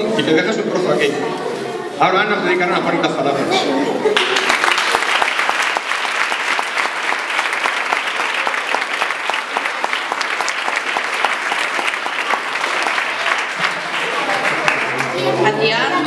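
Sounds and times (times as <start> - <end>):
audience applauding: 4.2 - 16.0.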